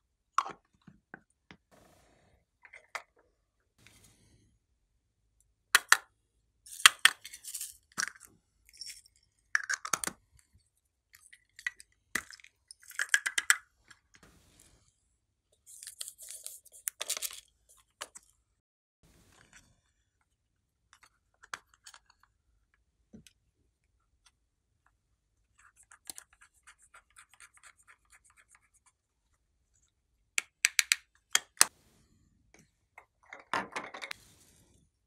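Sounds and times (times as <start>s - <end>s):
plastic caps clicking and tapping: 5.8s - 6.1s, 9.6s - 10.2s, 11.6s - 13.6s, 30.4s - 31.7s.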